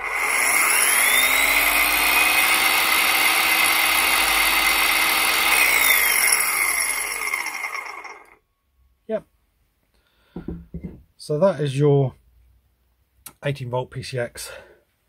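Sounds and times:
circular saw whining: 0:00.0 - 0:08.4.

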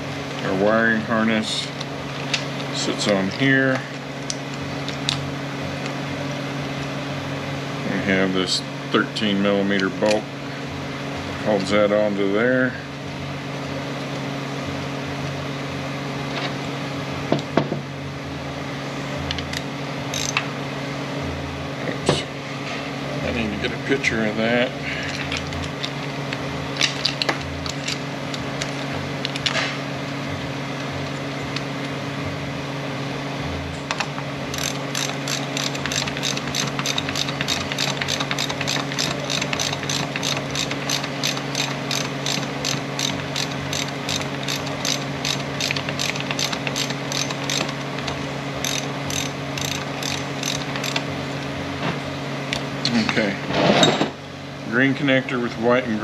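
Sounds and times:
steady low hum: 0:00.0 - 0:56.0
hand ratchet clicking: 0:20.1 - 0:20.4, 0:34.5 - 0:51.0.

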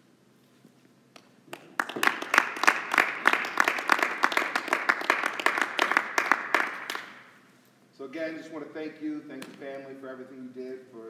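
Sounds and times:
small audience clapping: 0:01.2 - 0:07.4.

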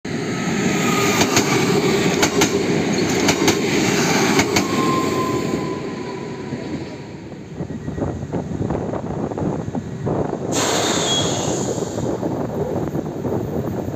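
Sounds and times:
diesel locomotive rumbling past: 0:00.1 - 0:13.9
faint wheel squeal: 0:07.6 - 0:08.3, 0:10.6 - 0:11.9.

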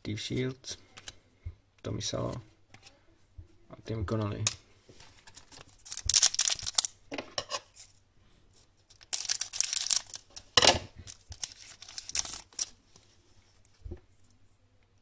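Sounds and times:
wrapper tearing and crinkling: 0:05.2 - 0:07.0, 0:08.9 - 0:12.8.

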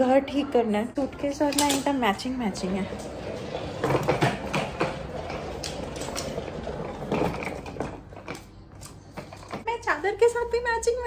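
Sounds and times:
suitcase wheels rattling: 0:01.0 - 0:09.7.

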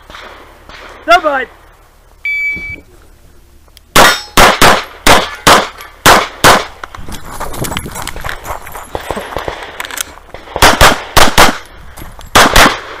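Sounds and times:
shot timer beep: 0:02.3 - 0:02.8
handgun shots: 0:04.0 - 0:06.8, 0:10.6 - 0:11.6, 0:12.3 - 0:13.0
footsteps scuffing on gravel: 0:06.8 - 0:10.4.

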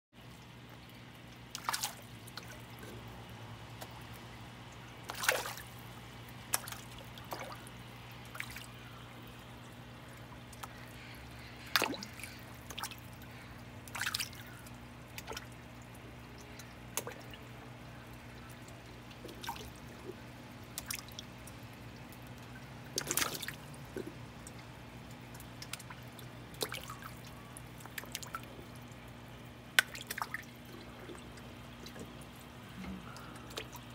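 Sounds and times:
steady low hum: 0:00.2 - 0:33.9
fish splashing at water surface: 0:01.2 - 0:09.4, 0:10.1 - 0:17.7, 0:18.4 - 0:33.9.

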